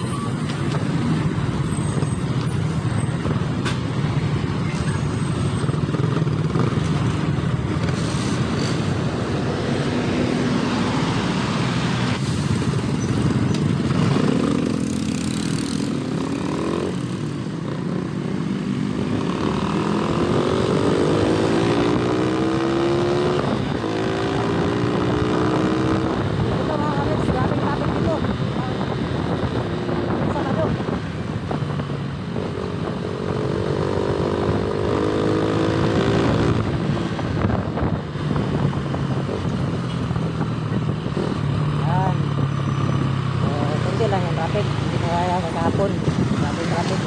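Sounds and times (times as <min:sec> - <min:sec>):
motorcycle engine accelerating: 0:12.6 - 0:47.0
wind noise on microphone: 0:19.8 - 0:47.0.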